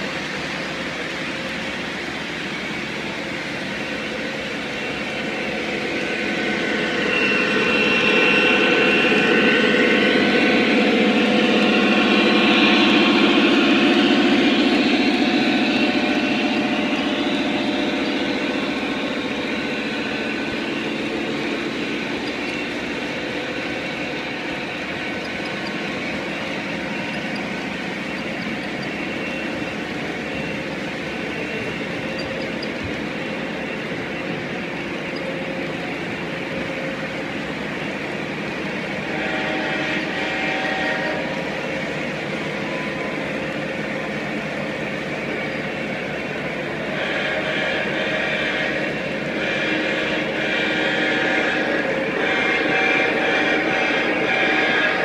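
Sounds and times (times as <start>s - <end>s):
model locomotive engine sound: 0.0s - 55.0s
steady tones: 4.8s - 46.8s
model train wheels clattering: 11.4s - 41.8s.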